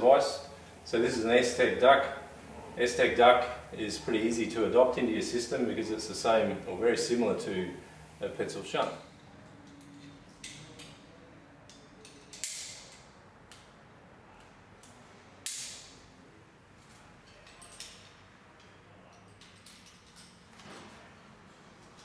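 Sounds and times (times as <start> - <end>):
metal climbing hardware clinking: 16.8 - 20.6.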